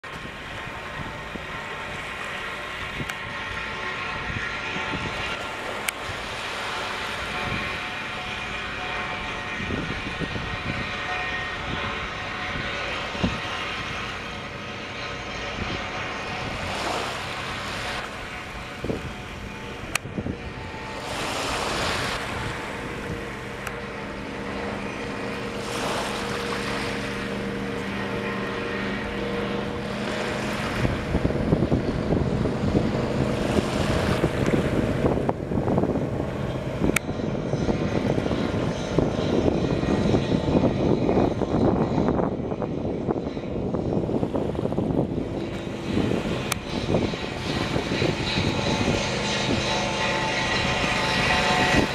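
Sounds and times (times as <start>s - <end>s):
boat engine running: 0.0s - 51.9s.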